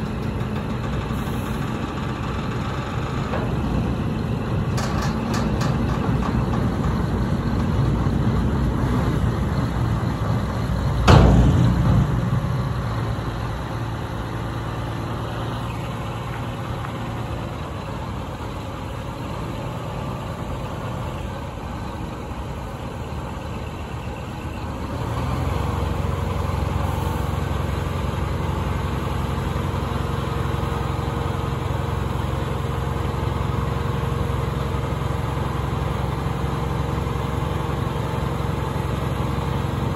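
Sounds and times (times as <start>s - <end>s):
diesel truck engine running: 0.0s - 39.9s
sudden loud burst: 10.9s - 14.1s.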